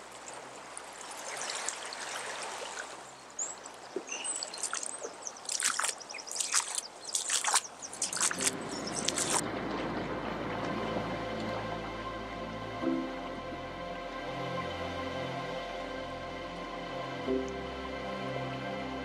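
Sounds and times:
boots wading through water: 0.0s - 9.4s
floodwater rushing: 0.0s - 15.6s.

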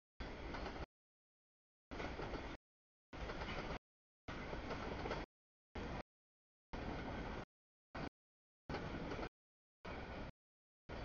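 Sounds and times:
freight train rumbling: 6.8s - 8.1s, 8.7s - 9.3s.

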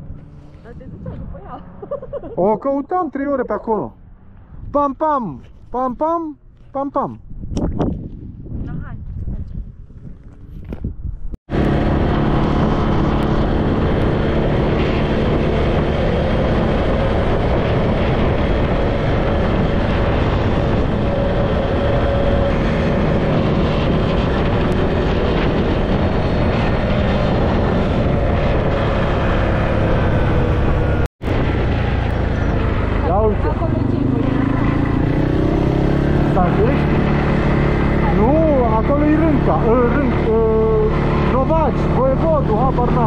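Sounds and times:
wind buffeting microphone: 0.0s - 2.3s, 4.2s - 43.0s
atv engine running: 11.5s - 43.0s.

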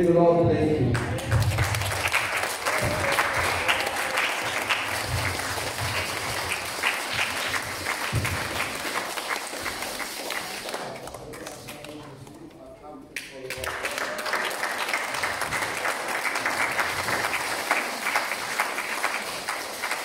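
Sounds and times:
congregation applauding: 0.9s - 12.5s, 13.2s - 20.0s.

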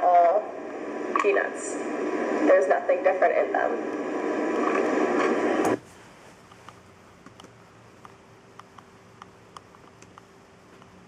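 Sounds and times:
loudspeaker hiss: 0.0s - 6.2s.

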